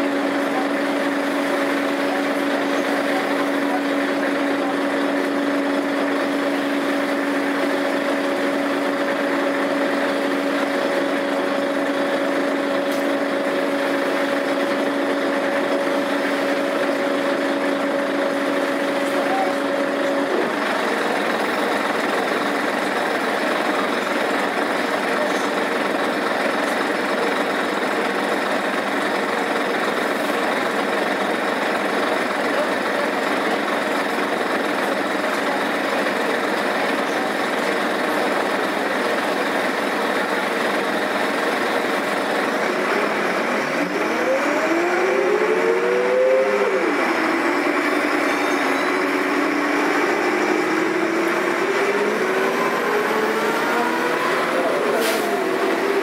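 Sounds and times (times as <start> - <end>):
bus engine rumble: 0.0 - 56.0
whine changing pitch: 43.6 - 56.0.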